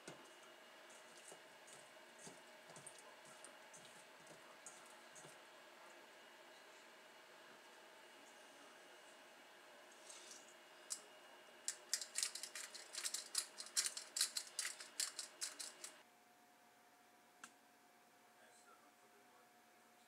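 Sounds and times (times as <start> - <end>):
pepper grinder crunching clicks: 11.7 - 16.0.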